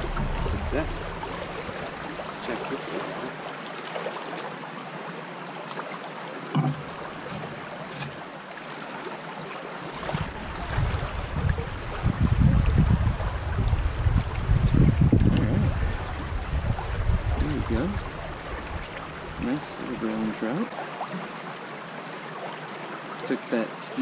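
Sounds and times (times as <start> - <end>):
low rumble: 0.0 - 3.2, 10.2 - 19.4
creek running over rocks: 0.0 - 24.0
knock: 6.6 - 6.8.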